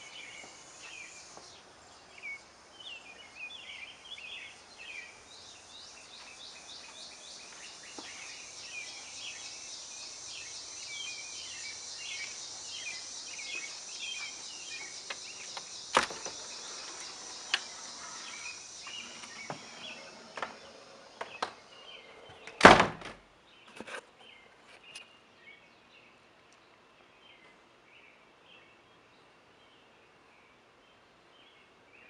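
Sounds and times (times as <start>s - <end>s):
birds chirping: 0.0s - 22.8s
door clicks and knocks: 15.9s - 16.6s, 18.9s - 21.6s, 22.3s - 23.2s
door shutting with thud: 15.9s - 23.2s.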